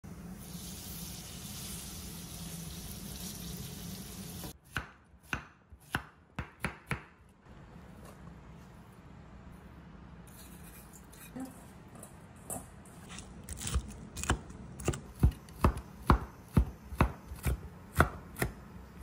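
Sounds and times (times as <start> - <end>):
batter sizzling in hot oil: 0.2 - 4.6
knife chopping on cutting board: 4.6 - 7.2, 13.6 - 18.6.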